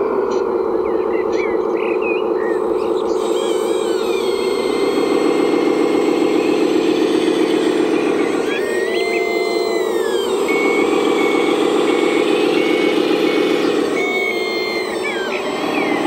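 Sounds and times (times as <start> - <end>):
radio-controlled model vehicle drone: 2.4 - 16.0.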